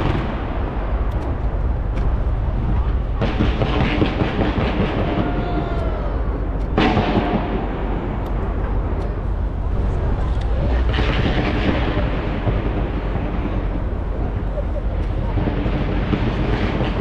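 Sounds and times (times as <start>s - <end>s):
firework crackling: 0.0s - 17.0s
rumble of firework bursts: 0.0s - 17.0s
firework bang: 1.9s - 9.0s, 10.6s - 14.5s.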